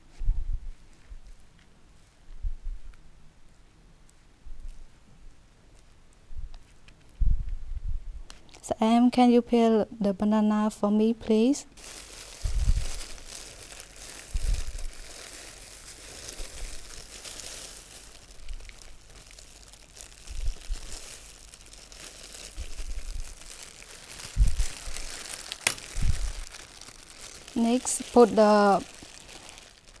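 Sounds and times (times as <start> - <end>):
plastic gloves crinkling: 11.4 - 30.0.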